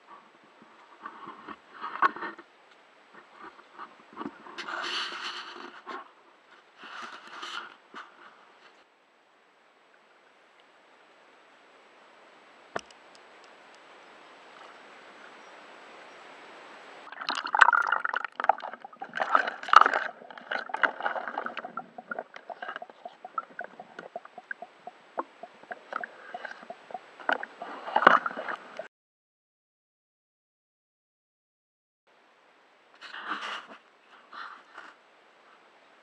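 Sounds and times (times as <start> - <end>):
splashes and crackles: 17.0 - 28.9
water sloshing and gurgling: 17.0 - 28.9.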